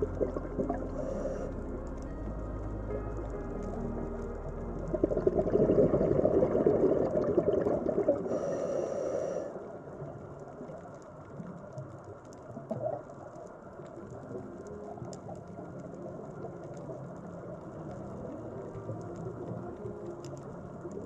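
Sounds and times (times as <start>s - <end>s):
steady underwater murmur: 0.0s - 1.9s
faint crackles: 0.0s - 21.0s.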